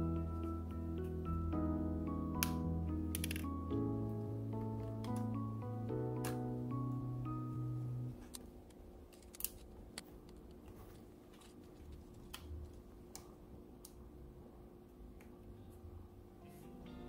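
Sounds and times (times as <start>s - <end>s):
background music: 0.0s - 8.3s, 16.4s - 17.0s.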